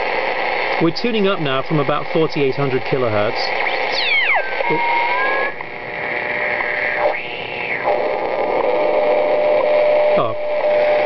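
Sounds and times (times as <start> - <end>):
radio receiver hiss: 0.0 - 11.0
heterodyne whistles: 3.7 - 5.5.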